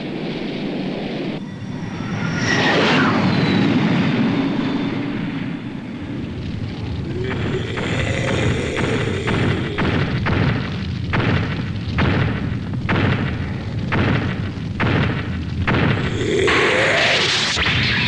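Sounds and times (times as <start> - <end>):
low rumble: 0.0 - 18.0
giant robot footsteps thudding: 9.8 - 16.1.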